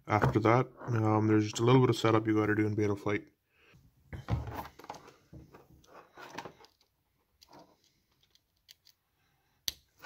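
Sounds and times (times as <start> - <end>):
small clicks and rustling: 4.7 - 9.0.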